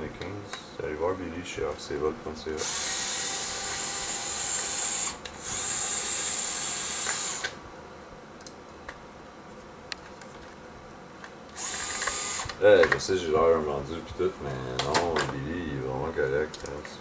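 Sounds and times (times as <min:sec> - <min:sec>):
cordless screwdriver running: 0:02.6 - 0:07.6, 0:11.5 - 0:12.6.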